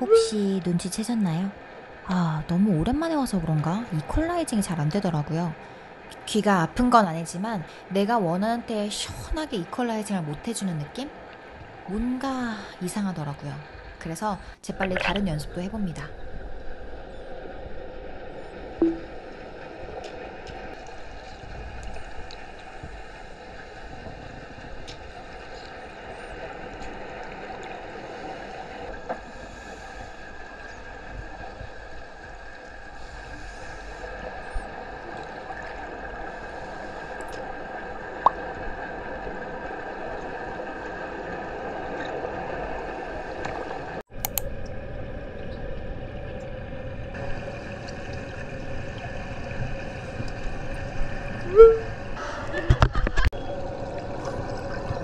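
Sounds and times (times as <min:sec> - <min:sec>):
muffled underwater water rush: 0:14.7 - 0:55.0.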